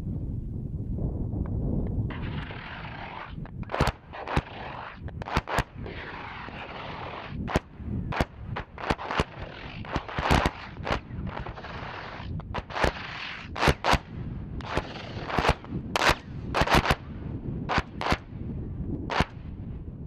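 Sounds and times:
low rumble: 0.0s - 20.0s
hissing wash: 2.1s - 7.6s
sharp explosion bangs: 2.1s - 18.4s.

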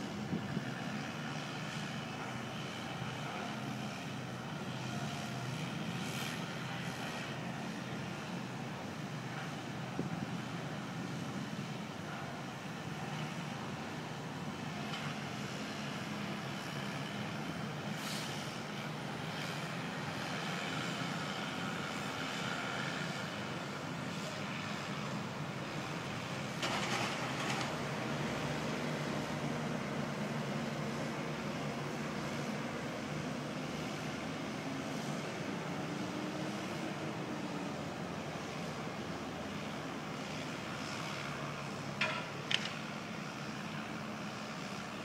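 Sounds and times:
city noise: 0.0s - 45.0s
truck and forklift engines humming: 0.0s - 45.0s.

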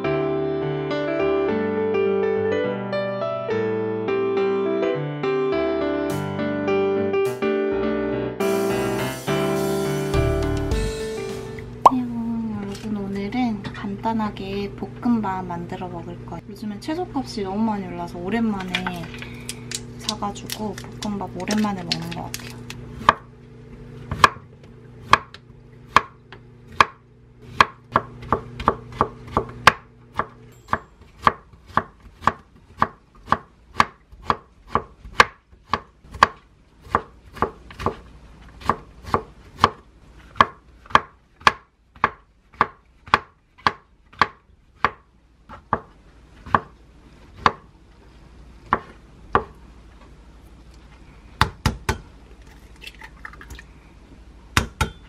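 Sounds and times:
knife chopping on wooden board: 23.0s - 23.3s, 24.1s - 38.0s, 38.6s - 46.8s, 47.4s - 47.7s, 48.7s - 49.6s, 51.4s - 52.0s, 54.6s - 55.0s.

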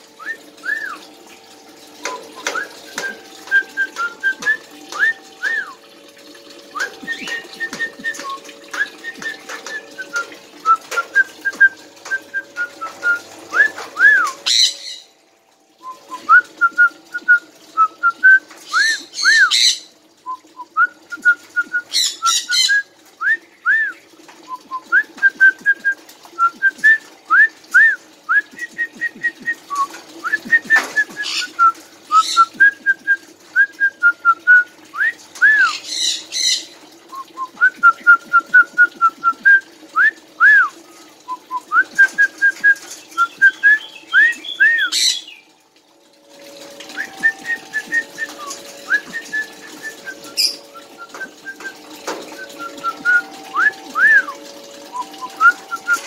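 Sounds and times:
parakeet harsh squawks: 18.8s - 19.9s.

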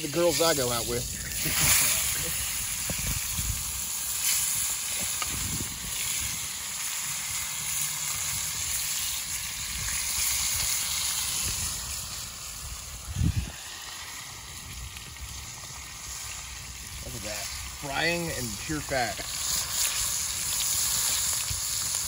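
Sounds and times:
meat sizzling in a skillet: 0.0s - 22.0s.

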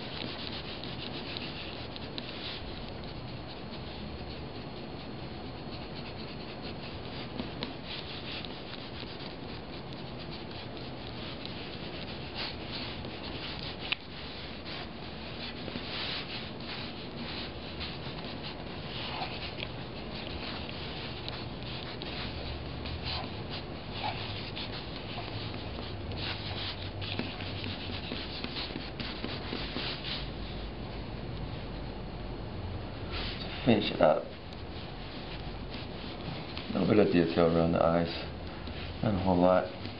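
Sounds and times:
pens scratching on paper: 0.0s - 30.6s.

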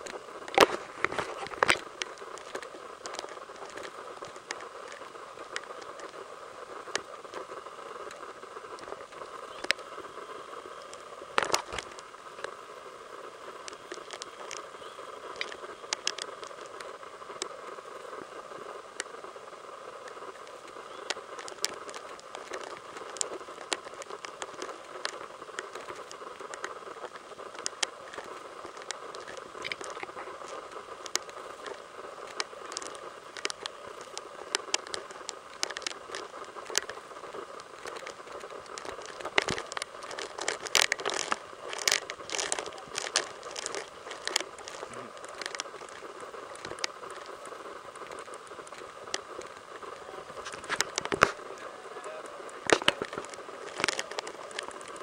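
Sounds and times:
background hiss: 0.0s - 55.0s
footsteps crunching on dry litter: 37.8s - 46.8s, 50.3s - 51.5s.

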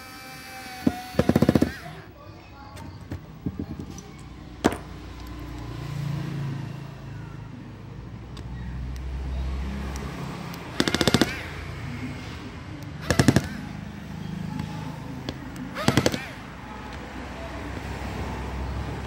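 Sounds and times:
powered screwdriver motor hum: 0.0s - 2.0s, 15.7s - 16.4s.

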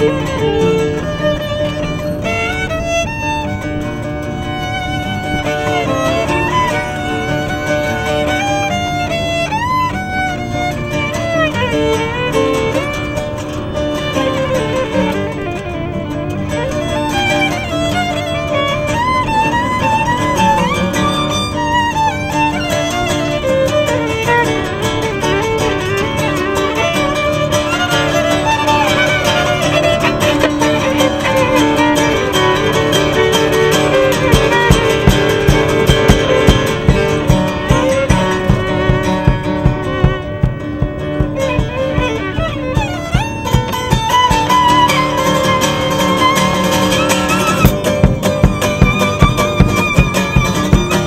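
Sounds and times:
acoustic guitar strumming: 0.0s - 51.0s
violin melody: 0.0s - 51.0s.

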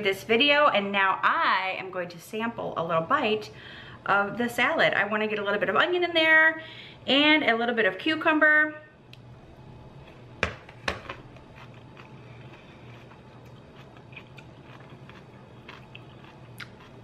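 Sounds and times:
faint low hum: 0.0s - 17.0s
person chewing quietly: 11.2s - 17.0s.

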